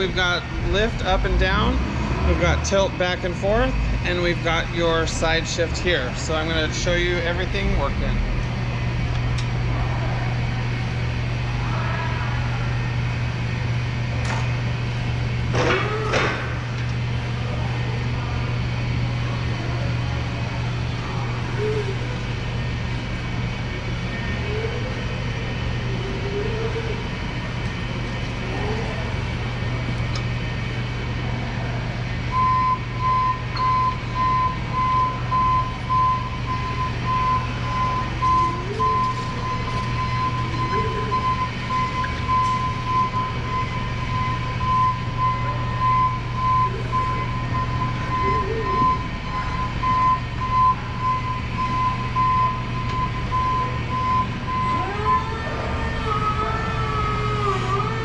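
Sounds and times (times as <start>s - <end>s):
low motor hum: 0.0s - 58.0s
forklift warning beeps: 32.2s - 58.0s.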